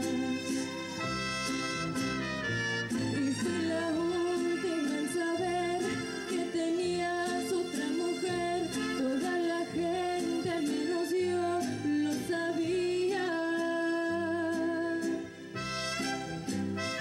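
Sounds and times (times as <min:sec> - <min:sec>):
woman singing into a microphone: 0:00.0 - 0:01.0, 0:03.0 - 0:15.5
instrumental accompaniment with beat: 0:15.6 - 0:17.0.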